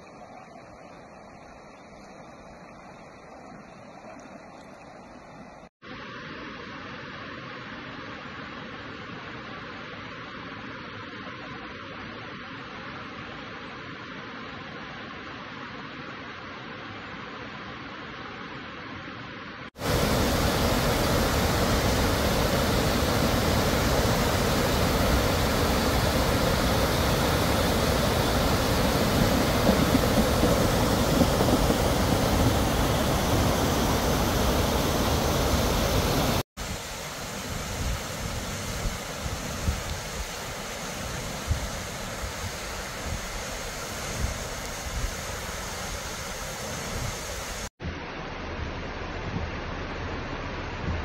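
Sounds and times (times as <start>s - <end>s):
floodwater rushing over weir: 19.8s - 48.4s.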